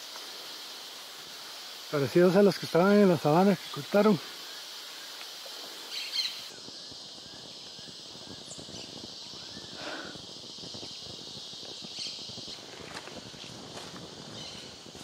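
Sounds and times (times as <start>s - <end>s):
insect chorus buzzing: 0.0s - 15.0s
bird calling: 5.8s - 6.5s
footsteps through grass: 12.4s - 15.0s.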